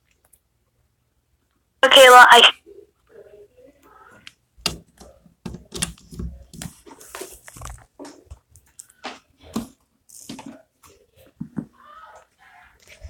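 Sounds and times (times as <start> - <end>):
crackling and rustling on microphone: 4.9 - 11.4, 12.2 - 13.0.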